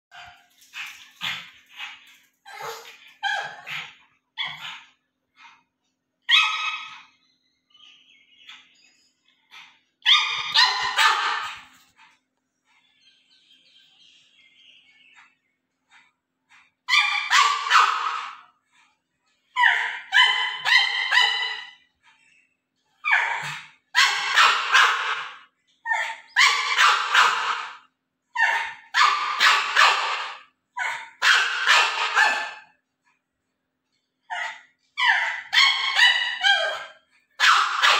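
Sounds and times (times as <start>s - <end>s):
dog barking in high yaps: 2.5s - 4.8s, 6.3s - 7.1s, 10.0s - 11.7s, 16.9s - 18.4s, 19.6s - 21.8s, 23.0s - 32.8s, 34.3s - 37.9s.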